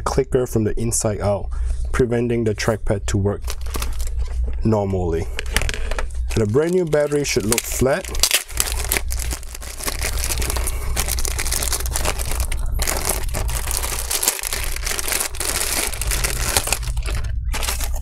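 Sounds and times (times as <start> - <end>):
plastic bag crinkling: 3.4 - 4.2, 5.3 - 18.0.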